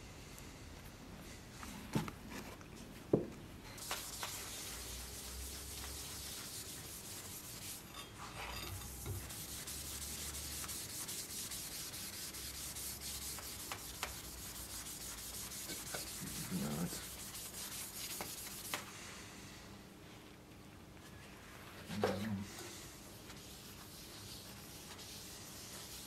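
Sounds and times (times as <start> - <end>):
gloved hand scrubbing: 3.8 - 7.9.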